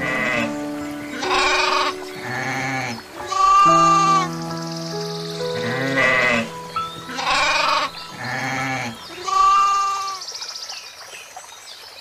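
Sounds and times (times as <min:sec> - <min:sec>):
goats bleating: 0:01.2 - 0:04.2.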